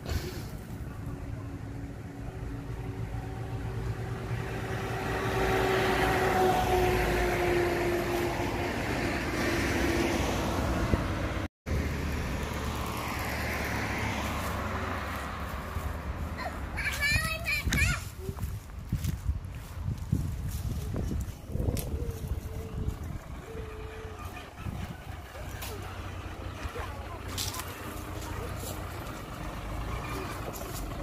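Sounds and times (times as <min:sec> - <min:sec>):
road noise with low rumble: 0:00.0 - 0:31.0
car driving past: 0:02.0 - 0:16.4.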